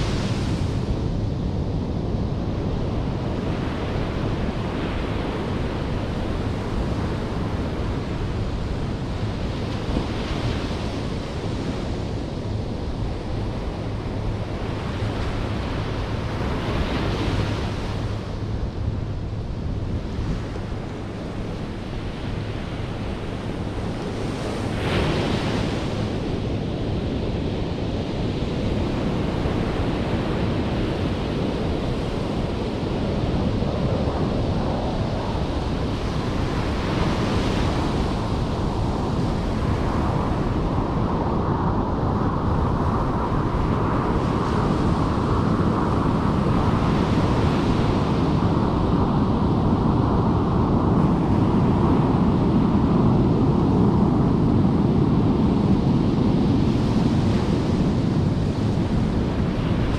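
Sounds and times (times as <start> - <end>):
ocean surf breaking on beach: 20.0 - 59.9.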